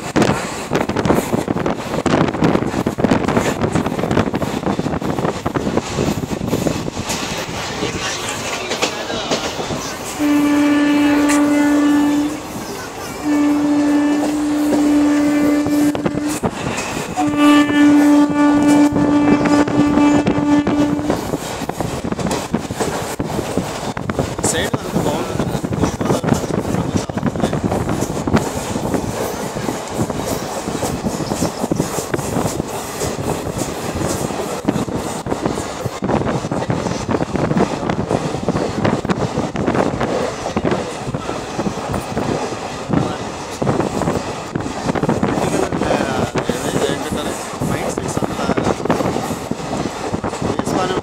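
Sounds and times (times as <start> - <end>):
moving train rattling: 0.0 - 51.0
wheels clattering on rails: 0.0 - 51.0
train horn blasts: 10.1 - 12.6, 13.2 - 21.3.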